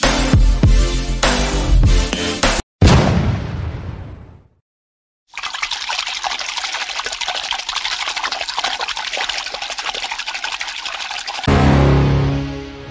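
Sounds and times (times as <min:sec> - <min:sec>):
hose spraying water on horse: 0:05.4 - 0:11.5.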